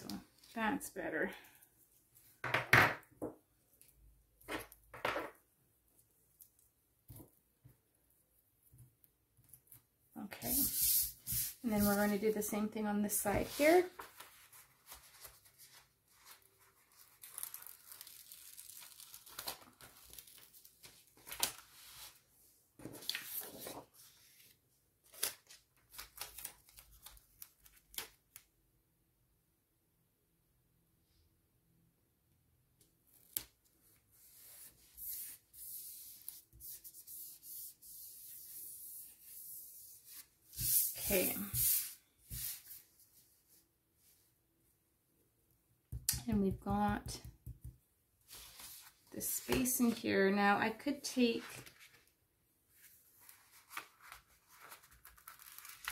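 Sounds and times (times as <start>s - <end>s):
paper rustling and crinkling: 13.4s - 22.2s, 22.8s - 28.2s, 51.3s - 52.1s, 52.8s - 55.9s.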